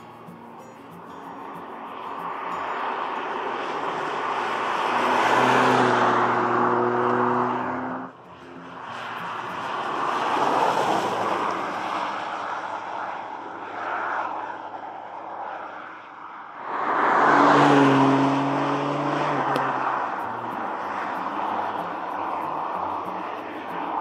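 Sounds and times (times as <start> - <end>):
car driving past: 3.5 - 13.0, 16.6 - 23.3.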